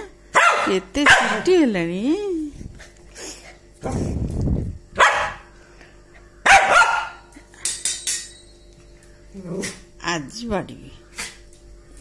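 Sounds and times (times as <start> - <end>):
small dog barking: 0.3 - 1.4, 5.0 - 5.5, 6.4 - 7.3.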